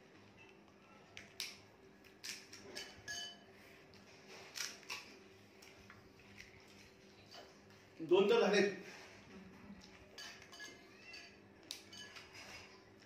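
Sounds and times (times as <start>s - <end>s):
spoon clinking against bowls: 2.8s - 3.4s, 10.1s - 12.3s.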